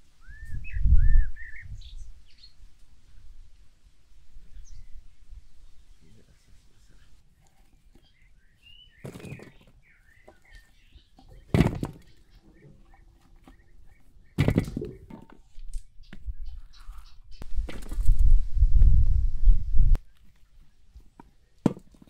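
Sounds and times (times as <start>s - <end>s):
small birds chirping: 0.1s - 2.9s, 4.3s - 17.7s.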